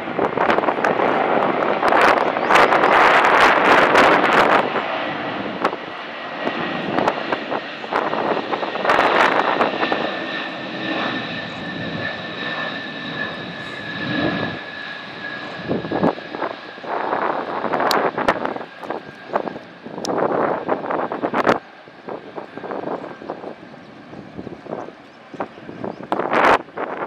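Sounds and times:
heavy jet roar: 0:00.0 - 0:27.0
jet engine whine: 0:00.0 - 0:27.0.

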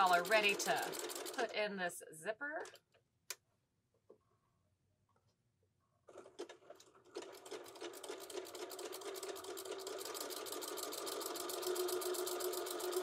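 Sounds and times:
sewing machine stitching: 0:00.0 - 0:01.5, 0:06.0 - 0:13.0.

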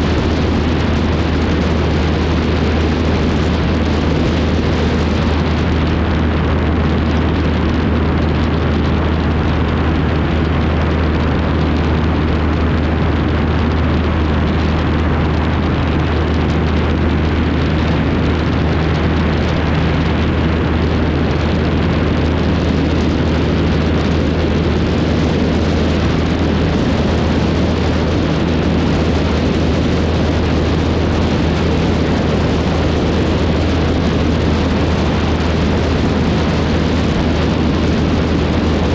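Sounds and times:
aircraft engine drone: 0:00.0 - 0:38.9
wind rushing over microphone: 0:00.0 - 0:38.9.

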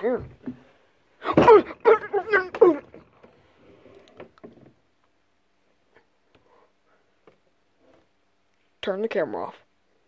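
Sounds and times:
person speaking: 0:00.0 - 0:00.5, 0:01.2 - 0:03.3, 0:08.8 - 0:09.7.

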